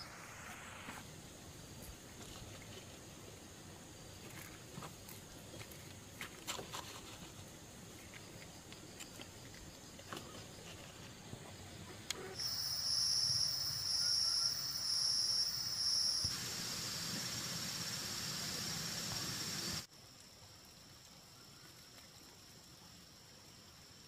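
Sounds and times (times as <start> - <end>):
steady hiss: 0.0 - 24.0
insect buzzing: 12.3 - 19.9.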